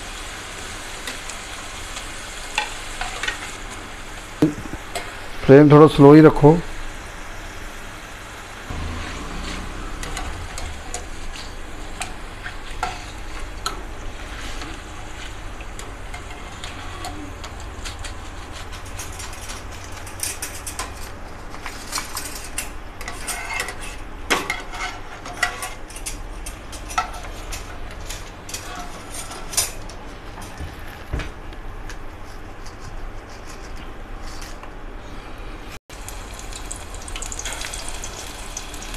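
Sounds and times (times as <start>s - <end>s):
oil sizzling: 6.8s - 18.3s, 35.9s - 38.9s
wire spoon scraping metal pan: 22.3s - 26.2s.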